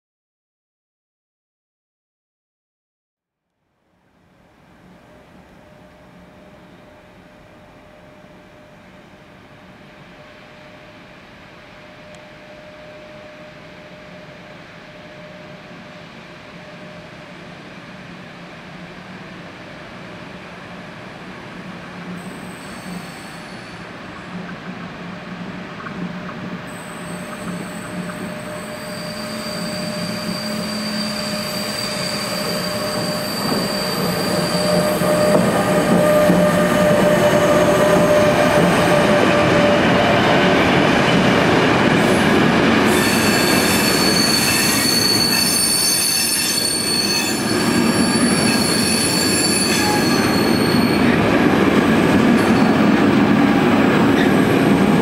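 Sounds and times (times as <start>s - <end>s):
electric locomotive whine: 3.8s - 55.0s
train wheels squealing: 5.1s - 17.6s, 22.1s - 24.4s, 26.7s - 53.0s.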